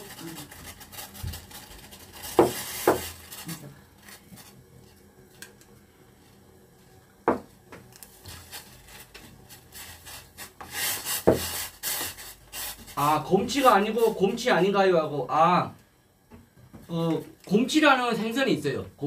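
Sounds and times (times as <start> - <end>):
wooden spoon stirring in pot: 7.4 - 14.6.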